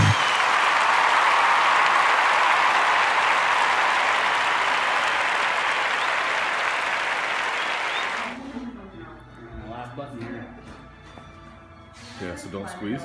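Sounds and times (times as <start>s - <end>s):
crowd applause: 0.0s - 8.4s.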